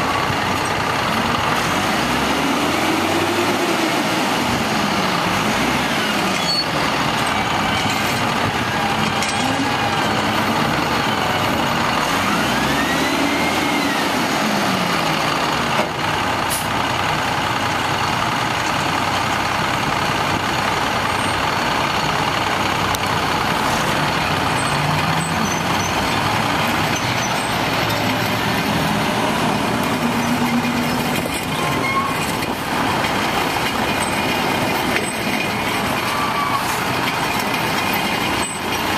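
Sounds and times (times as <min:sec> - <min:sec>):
diesel truck engine revving: 0:00.0 - 0:38.9.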